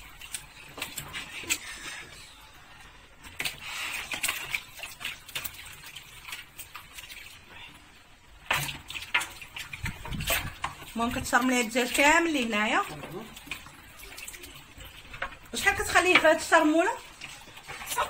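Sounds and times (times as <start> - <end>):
hands squishing wet marinade: 0.0 - 18.0.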